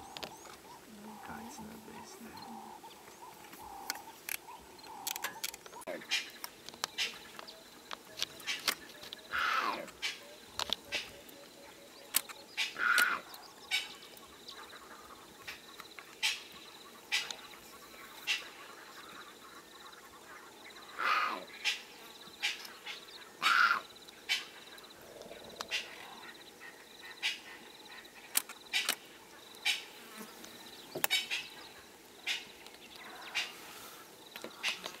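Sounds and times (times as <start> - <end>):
leopard cub mewing: 9.3 - 10.2, 12.6 - 13.4, 21.0 - 21.5, 23.4 - 24.4.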